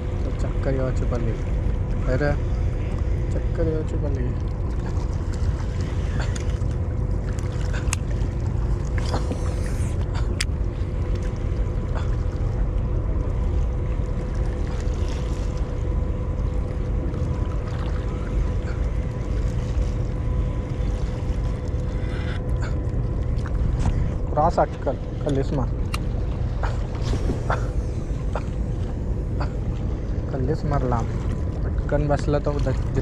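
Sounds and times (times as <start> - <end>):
faint steady hum: 0.0 - 33.0
wind buffeting microphone: 22.6 - 33.0.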